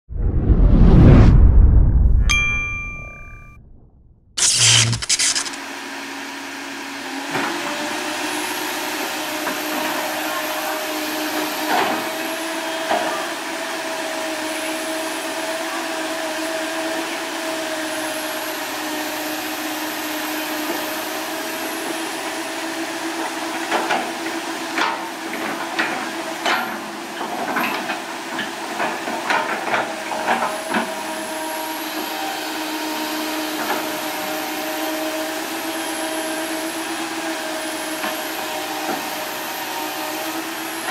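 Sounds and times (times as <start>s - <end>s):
excavator engine hum: 4.4s - 40.9s.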